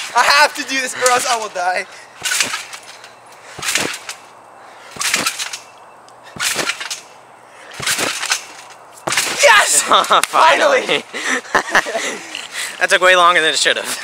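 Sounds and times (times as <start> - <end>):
trampoline bounce swish: 2.2 - 4.3, 4.9 - 5.7, 6.4 - 10.3.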